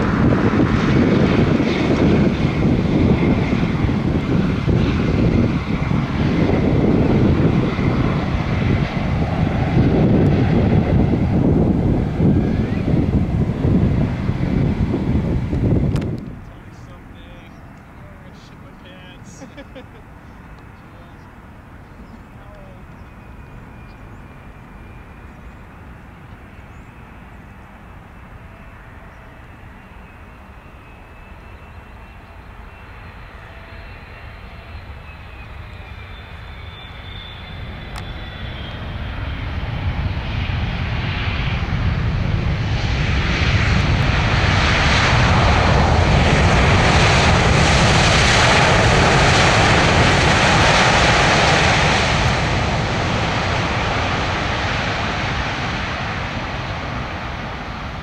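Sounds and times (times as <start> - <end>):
jet engine noise: 0.0 - 58.0
thin whistling whine: 22.9 - 39.4.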